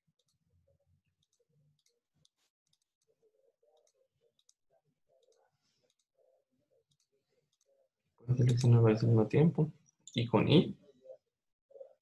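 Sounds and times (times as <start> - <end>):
computer mouse clicks: 1.2 - 4.6.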